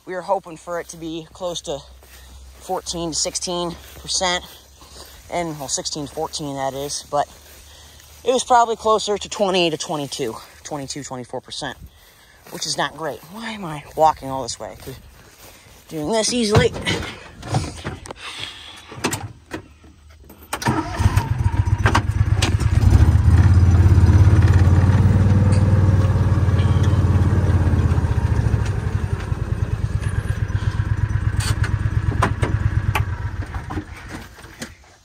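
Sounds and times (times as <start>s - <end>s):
tractor engine running: 0.0s - 35.0s.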